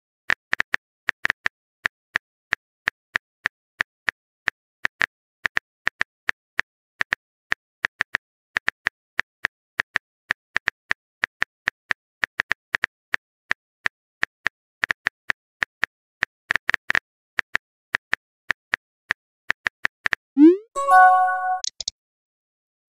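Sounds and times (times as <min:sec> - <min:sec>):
phone keyboard typing clicks: 0:20.9 - 0:21.9.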